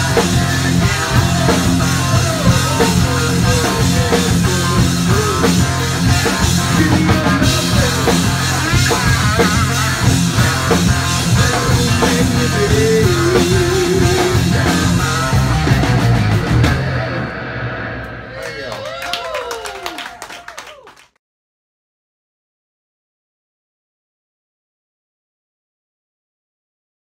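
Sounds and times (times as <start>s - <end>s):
drum kit beat: 0.0s - 17.2s
electric bass: 0.0s - 18.5s
lead guitar line: 0.0s - 19.6s
electric guitar: 0.0s - 20.2s.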